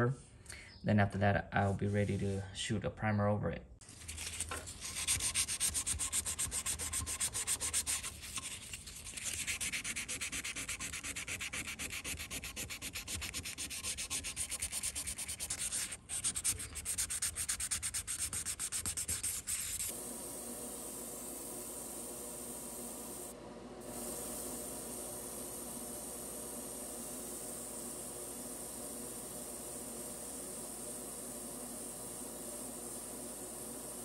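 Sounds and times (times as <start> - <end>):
sandpaper rubbing on metal: 3.9 - 19.9.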